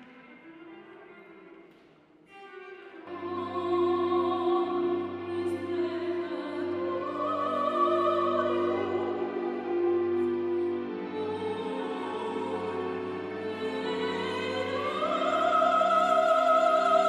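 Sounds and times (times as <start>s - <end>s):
cello: 0.0s - 17.0s
woman singing operatically: 3.0s - 10.0s, 11.0s - 17.0s
keyboard: 3.1s - 17.0s.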